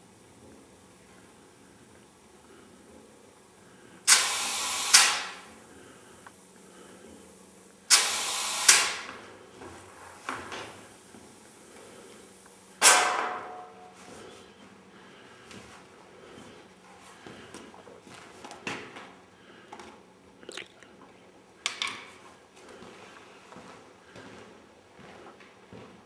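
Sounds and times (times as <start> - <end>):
compressed air hissing: 3.5 - 14.4.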